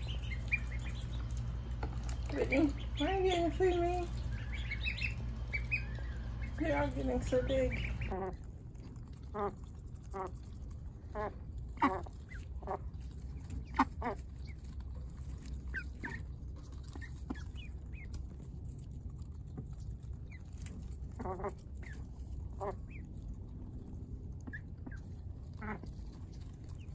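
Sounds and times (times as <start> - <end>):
ducks quacking: 0.0 - 8.5, 9.2 - 14.8, 15.4 - 16.3, 21.1 - 23.1, 24.4 - 26.9
ducklings peeping: 0.0 - 26.9.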